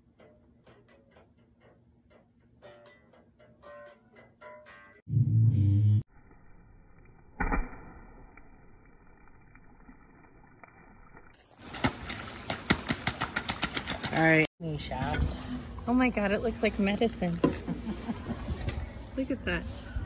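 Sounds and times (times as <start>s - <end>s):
loud low tone: 5.1s - 6.1s
boots splashing in puddle: 11.6s - 14.5s.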